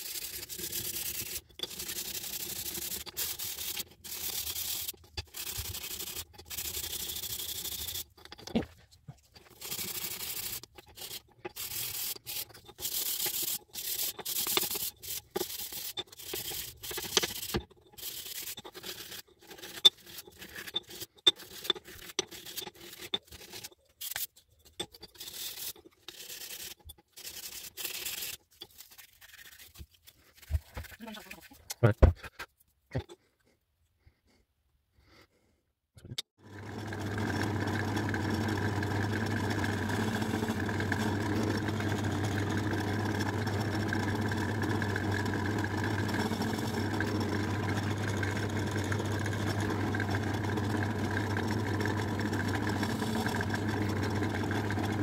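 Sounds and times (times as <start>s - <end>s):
sandpaper rubbing wood: 0.0s - 8.1s, 9.5s - 24.3s, 25.2s - 31.0s.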